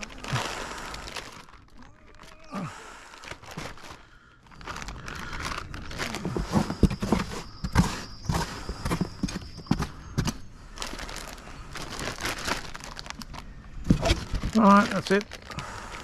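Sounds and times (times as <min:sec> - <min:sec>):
plastic bags crinkling: 0:00.0 - 0:16.0
scraping polystyrene box: 0:04.6 - 0:13.0.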